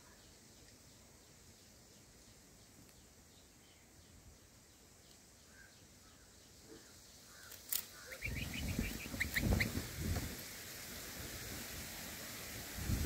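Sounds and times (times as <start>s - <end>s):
nestlings cheeping: 7.5s - 9.9s
low rustling rumble: 8.3s - 13.0s.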